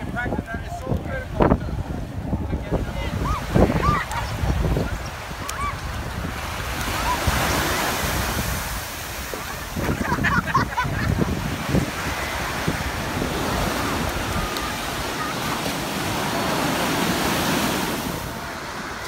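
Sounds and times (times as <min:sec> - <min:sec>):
ocean surf breaking: 0:00.0 - 0:19.0
wind buffeting microphone: 0:00.0 - 0:19.0
faint voices: 0:11.9 - 0:19.0.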